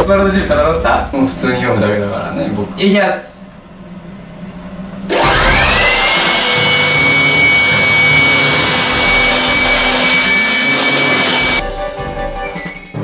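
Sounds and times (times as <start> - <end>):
electric blower motor whining: 5.1 - 11.6.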